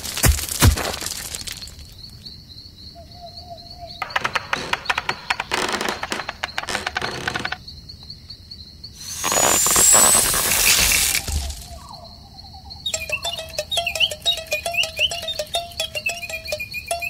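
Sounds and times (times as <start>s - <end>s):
high cricket-like chirring: 0.2s - 17.0s
rattling clicks: 4.0s - 7.6s.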